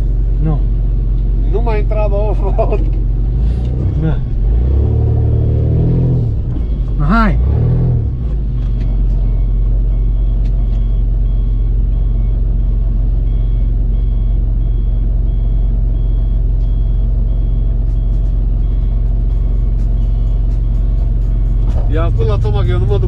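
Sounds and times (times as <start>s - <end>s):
vehicle engine idling: 0.0s - 23.0s
electronic warning beeps: 13.3s - 23.0s.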